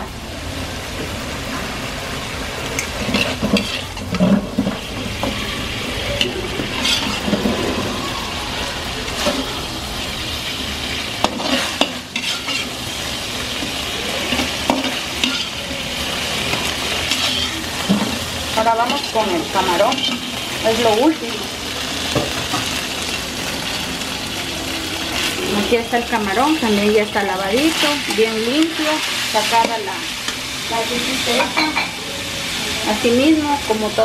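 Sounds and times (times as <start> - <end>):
pork sizzling in oil: 0.0 - 34.0
spatula scraping a wok: 2.7 - 7.9, 9.1 - 20.9.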